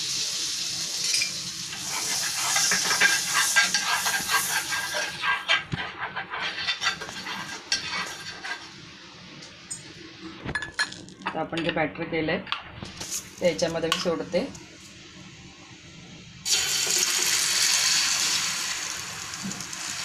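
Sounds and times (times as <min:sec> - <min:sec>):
butter and oil sizzling in pan: 0:00.0 - 0:09.2, 0:16.5 - 0:20.0
metal spoon scraping pan: 0:01.0 - 0:08.8.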